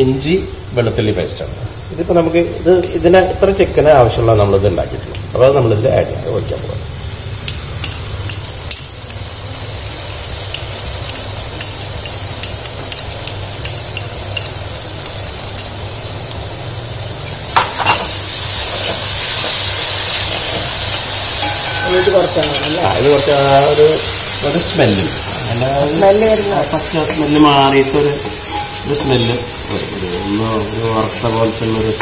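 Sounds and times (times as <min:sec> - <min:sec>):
frying sizzle in hot oil: 0:00.0 - 0:32.0
metal spoon clinking bowl: 0:21.4 - 0:23.2.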